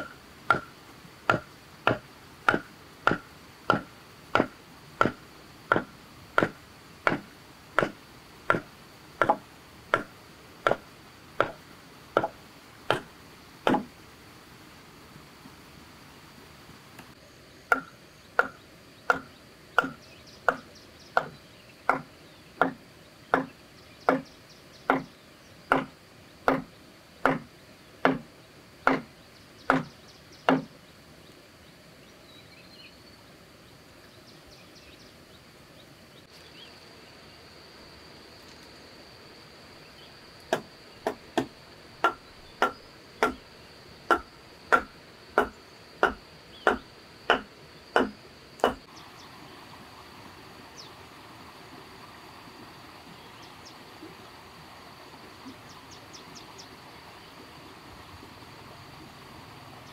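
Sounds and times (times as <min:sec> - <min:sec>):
high insect buzz: 0:00.0 - 0:59.9
chopping blows on wood: 0:00.5 - 0:00.7, 0:01.3 - 0:11.6, 0:12.2 - 0:13.9, 0:17.7 - 0:23.5, 0:24.9 - 0:25.1, 0:25.7 - 0:29.1, 0:29.7 - 0:29.9, 0:30.5 - 0:30.7, 0:40.5 - 0:43.4, 0:44.1 - 0:48.8.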